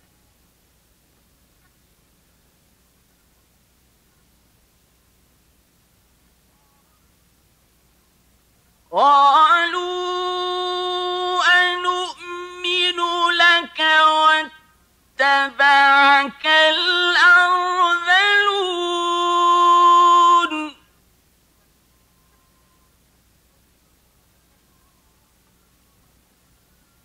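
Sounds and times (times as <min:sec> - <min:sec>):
man chanting melodically: 0:09.0 - 0:20.9.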